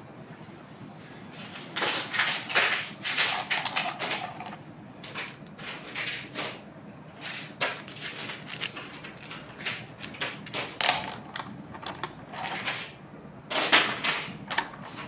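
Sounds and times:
stones clicking and rattling: 3.1 - 6.6, 7.2 - 12.9, 13.8 - 15.0.

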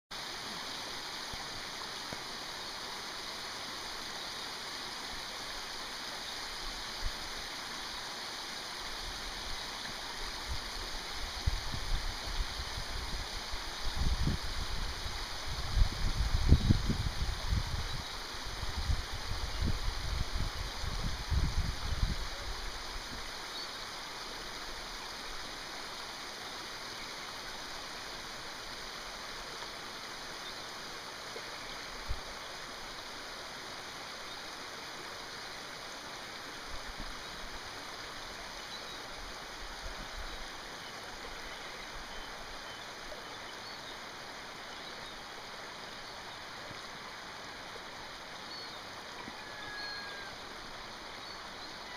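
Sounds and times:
water rushing: 0.1 - 51.9
wind buffeting microphone: 11.4 - 22.2.

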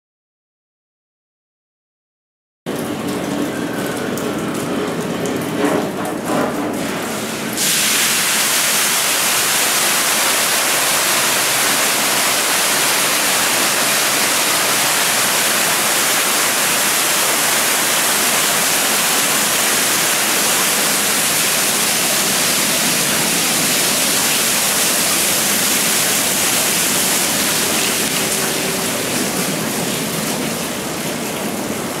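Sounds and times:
waterfall rushing: 7.6 - 32.0.

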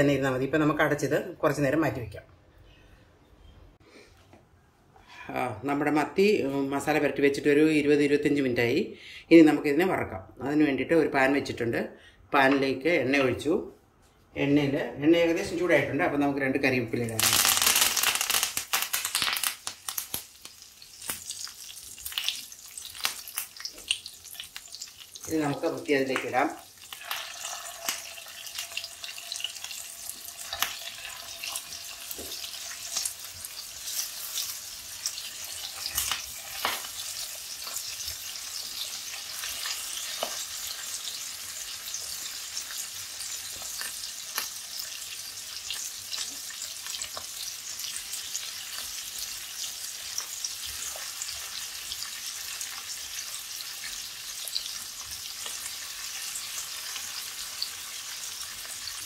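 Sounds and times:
fish sizzling in hot oil: 17.2 - 59.0.

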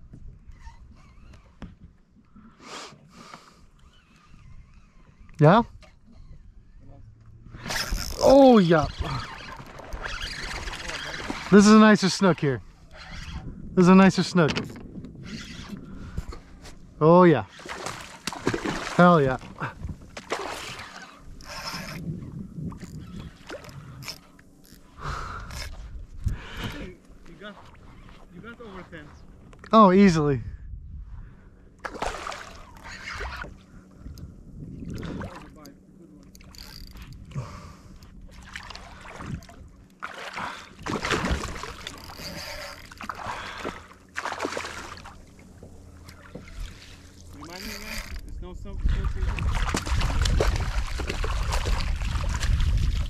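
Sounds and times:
water splashing and sloshing: 3.8 - 29.6, 31.8 - 53.0
fish thrashing at surface: 17.5 - 21.6, 40.0 - 45.2, 49.4 - 53.0.

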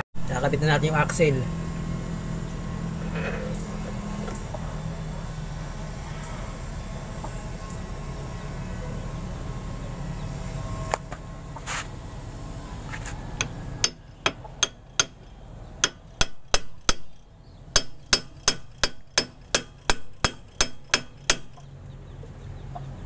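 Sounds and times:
hammer striking metal rod: 13.4 - 21.7.

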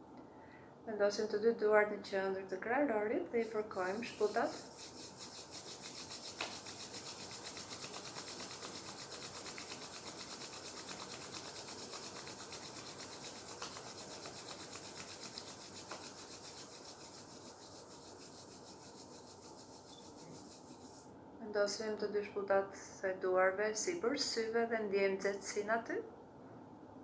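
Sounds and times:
palms rubbing together: 3.4 - 21.1.

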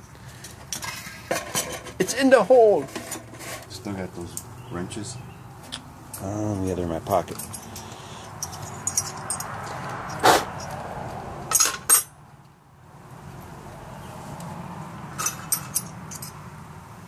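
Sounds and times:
wrenches clinking on metal: 7.1 - 10.8, 11.5 - 12.1, 15.2 - 16.4.

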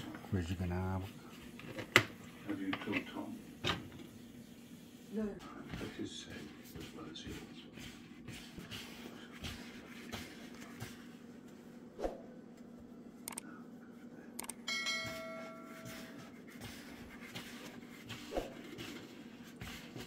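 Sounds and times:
hands kneading dough: 4.2 - 11.9, 15.0 - 20.0
bell-like ding: 14.7 - 16.0.

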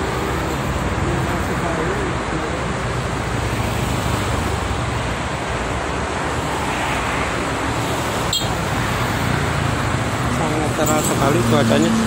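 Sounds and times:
highway traffic roar: 0.0 - 12.0.

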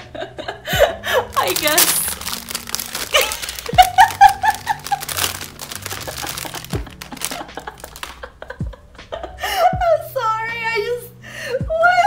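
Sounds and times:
soft background music: 0.0 - 12.0
plastic bag crinkling: 1.3 - 8.3.

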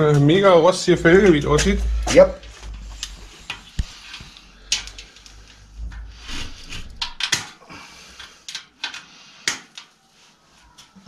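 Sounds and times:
bicycle wheel clicking and rattling: 1.4 - 7.6.

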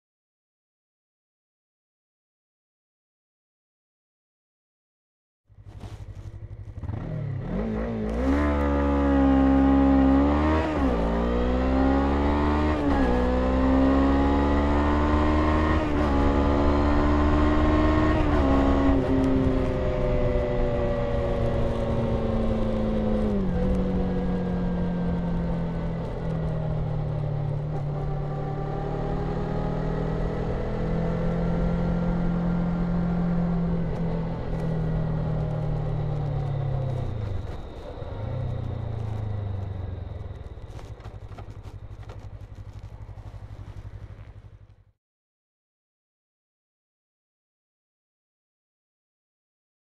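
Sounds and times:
motorcycle engine accelerating through gears: 5.5 - 45.0.

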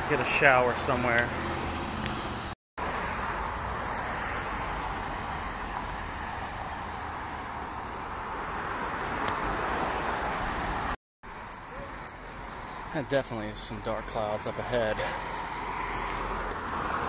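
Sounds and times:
passing cars hiss: 14.8 - 17.0.

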